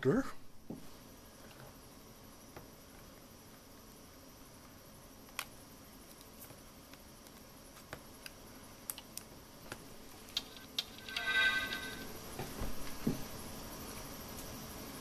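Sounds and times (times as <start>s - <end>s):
steady low hiss: 0.0s - 15.0s
fingers clicking and tapping tablet: 10.2s - 12.0s.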